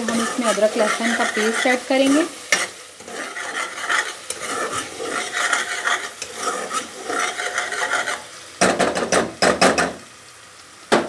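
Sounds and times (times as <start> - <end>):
metal spoon scraping pot: 0.0 - 8.3
onions sizzling in oil: 0.0 - 11.0.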